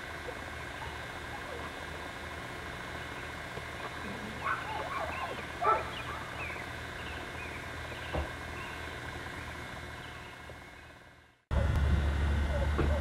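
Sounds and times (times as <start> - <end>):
steady low hum: 0.0 - 13.0
distant warbling animal cries: 4.0 - 8.9.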